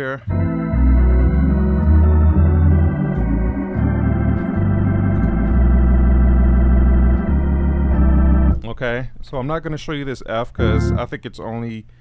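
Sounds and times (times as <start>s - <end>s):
organ chords with pedal bass: 0.2s - 8.7s, 10.6s - 11.1s.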